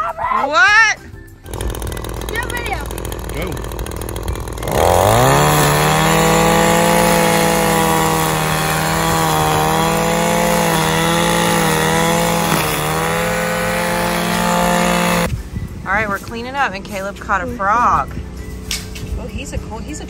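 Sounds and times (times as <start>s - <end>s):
string trimmer engine running: 1.4s - 15.3s.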